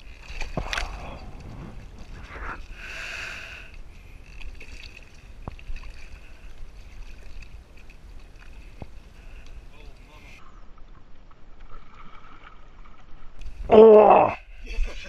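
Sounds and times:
water lapping against boat hull: 4.0s - 10.3s.

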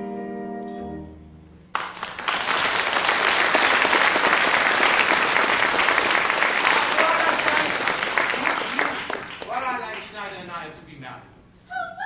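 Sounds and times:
audience applause: 1.8s - 10.4s.

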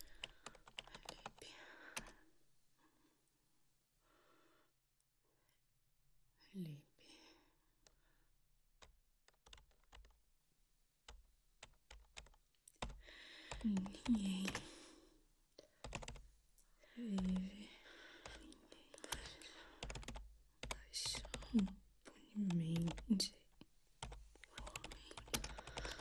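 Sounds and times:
keyboard keystrokes clicking: 8.8s - 10.1s, 15.8s - 16.2s, 19.0s - 21.5s, 24.0s - 26.0s
breathy voice sounds: 12.8s - 16.0s, 16.8s - 20.0s, 24.4s - 26.0s.

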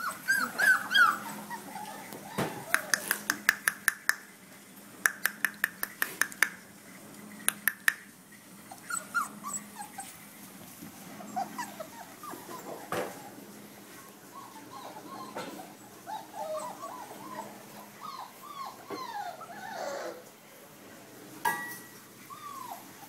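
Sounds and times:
puppies whimpering and squeaking: 0.0s - 3.5s, 6.8s - 20.4s, 21.8s - 23.0s.

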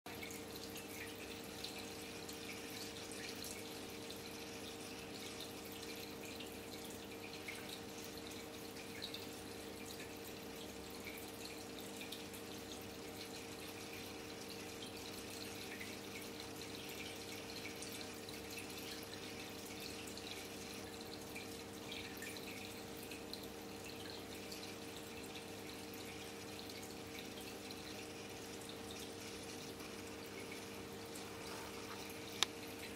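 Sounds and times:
aquarium water trickling: 0.1s - 32.9s
low mechanical hum: 0.1s - 32.9s.

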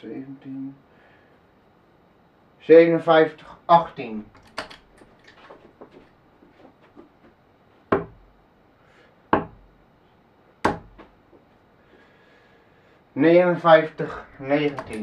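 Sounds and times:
darts striking a dartboard: 7.9s - 8.2s, 9.3s - 9.7s, 10.6s - 11.2s.

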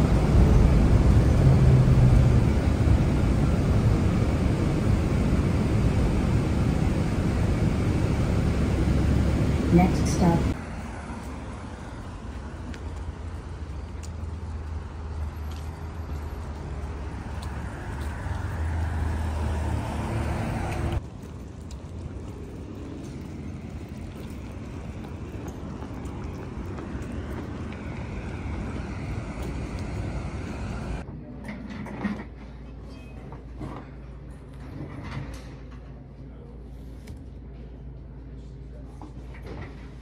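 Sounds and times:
passing cars rumbling: 0.0s - 31.0s.

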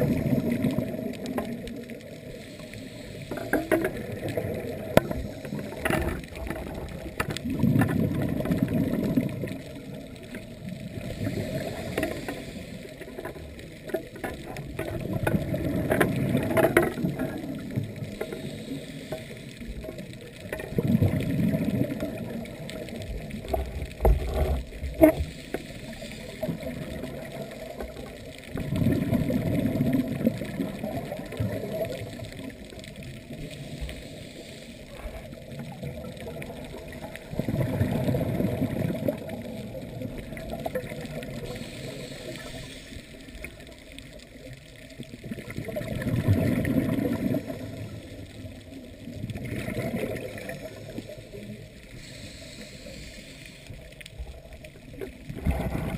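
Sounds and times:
exhaled bubbles underwater: 0.0s - 55.9s.

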